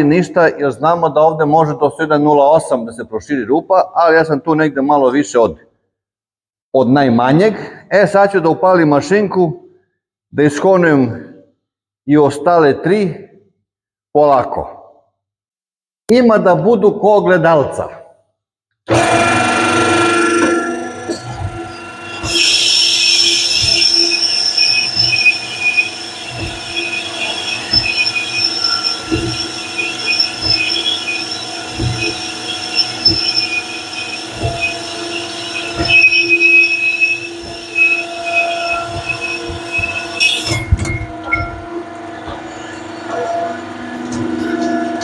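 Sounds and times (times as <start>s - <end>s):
cylinder hone squealing: 18.9s - 44.9s
motor hum: 18.9s - 45.0s
low thumps: 19.2s - 41.7s.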